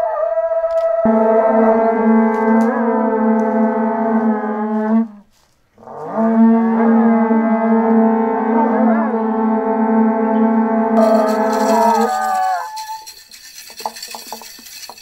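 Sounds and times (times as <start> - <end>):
conch shell trumpets blowing: 11.0 - 14.5.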